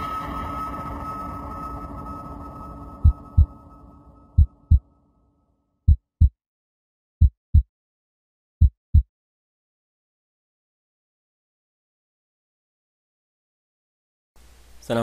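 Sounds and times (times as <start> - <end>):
low hum: 0.0 - 5.2
heartbeat double thumps: 3.0 - 3.5, 4.4 - 4.8, 5.9 - 6.4, 7.2 - 7.7, 8.6 - 9.1.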